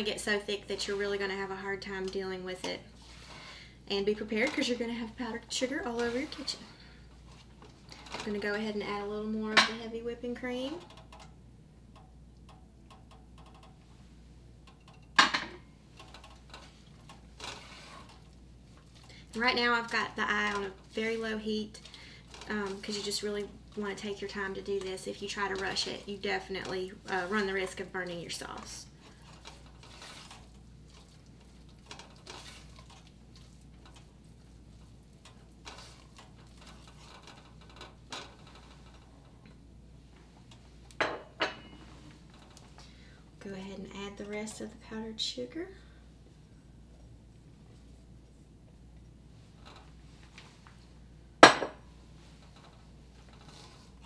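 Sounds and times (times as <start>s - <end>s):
spatula scraping pot: 0.0s - 8.5s, 16.0s - 18.4s, 19.0s - 39.0s.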